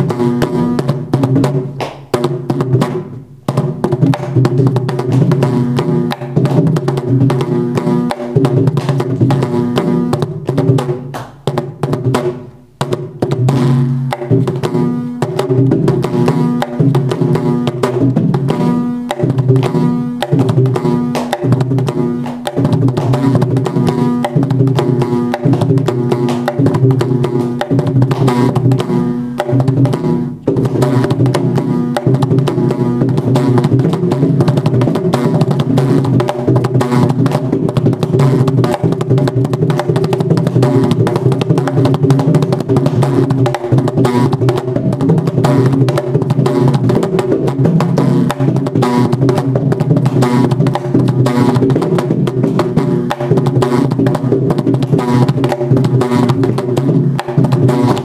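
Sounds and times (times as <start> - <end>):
hand drum played solo: 0.0 - 58.0.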